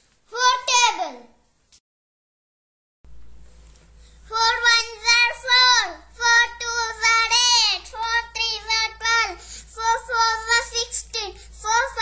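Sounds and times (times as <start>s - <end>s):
child chanting sing-song: 4.3s - 12.0s.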